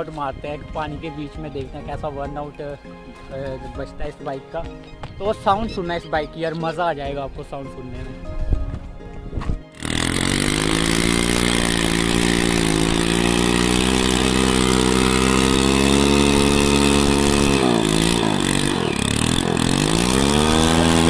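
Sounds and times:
motorcycle engine revving: 9.6s - 21.0s.

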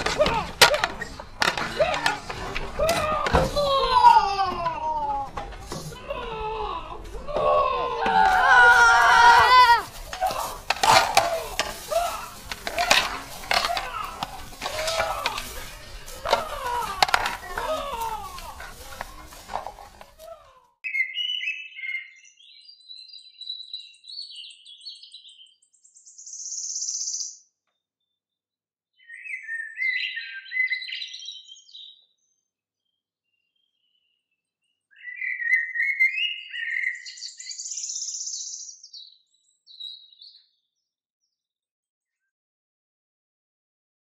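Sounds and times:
songbird chirping and warbling: 20.8s - 42.3s.

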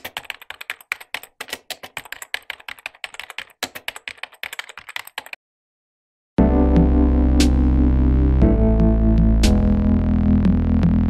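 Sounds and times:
rapid typing on keys: 0.0s - 5.4s.

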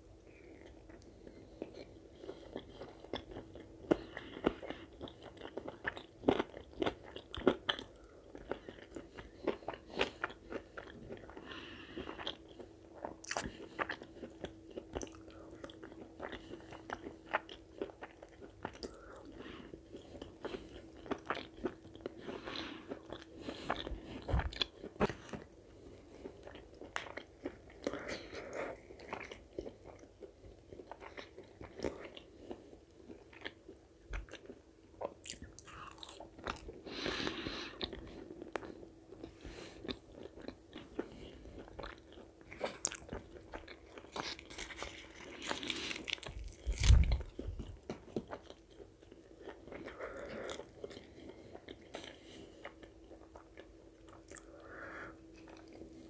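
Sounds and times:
faint steady hum: 0.0s - 56.0s
chewing and biting food: 0.5s - 56.0s
small crunches: 42.6s - 48.5s.

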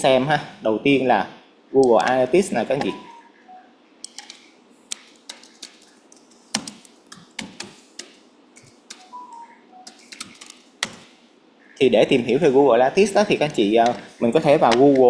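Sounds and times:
keyboard typing: 1.8s - 11.2s, 13.2s - 15.0s
mouse clicks: 4.0s - 11.1s.

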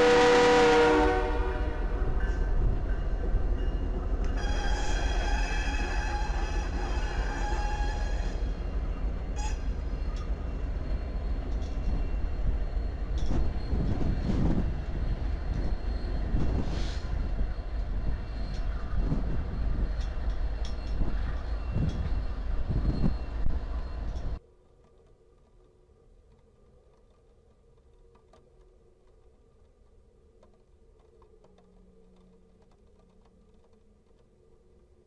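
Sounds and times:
diesel locomotive engine rumble: 0.0s - 24.4s
train clanks and thumps: 1.8s - 25.1s.

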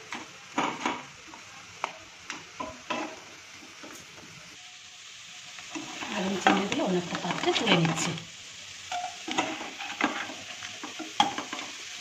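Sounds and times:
prawns sizzling in a pan: 0.0s - 12.0s
wooden spatula scraping a pan: 8.9s - 11.8s.

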